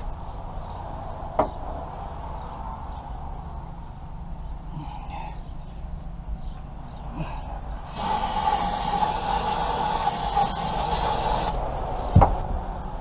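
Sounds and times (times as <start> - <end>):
aerosol spray hiss: 7.9 - 11.5
sharp thump: 12.1 - 12.5.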